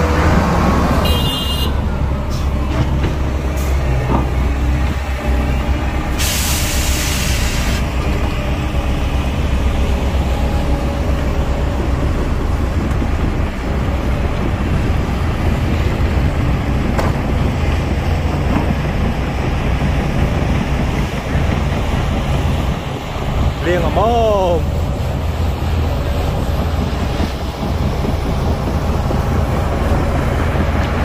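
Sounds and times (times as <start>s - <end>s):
diesel engine running: 0.0s - 31.0s
burst of hissing: 6.1s - 7.9s.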